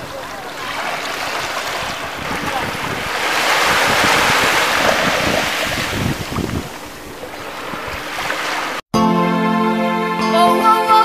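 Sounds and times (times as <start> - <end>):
music with sustained chords: 9.0 - 11.0.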